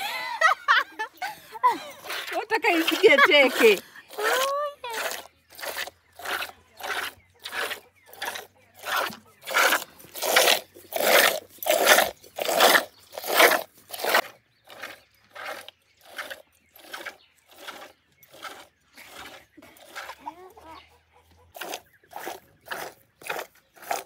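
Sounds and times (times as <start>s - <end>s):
milk spurting into container: 2.0s - 20.5s, 21.6s - 24.0s.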